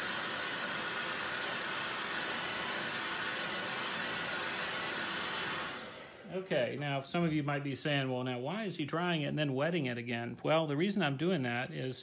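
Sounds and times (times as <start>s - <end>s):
hair dryer blowing: 0.0s - 6.5s.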